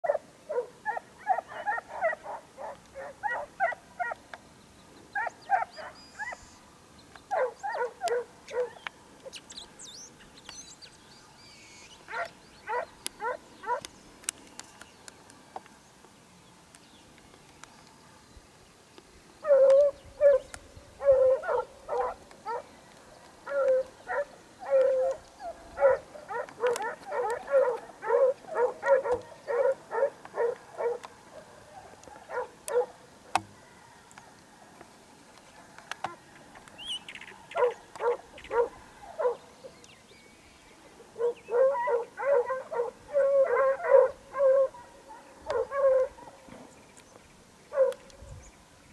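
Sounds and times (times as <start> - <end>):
dogs baying and barking: 0.0 - 4.2, 5.2 - 6.4, 7.3 - 8.8, 12.1 - 13.9, 19.4 - 22.7, 23.4 - 33.0, 37.5 - 39.4, 41.1 - 46.7, 47.7 - 48.0.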